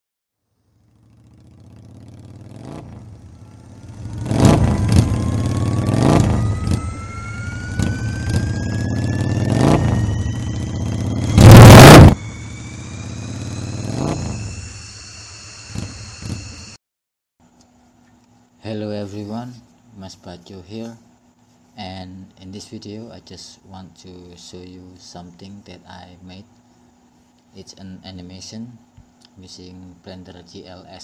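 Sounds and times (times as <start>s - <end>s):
rising whine: 0.7s - 16.8s
low engine hum: 0.8s - 16.8s
whooshes: 3.8s - 16.8s.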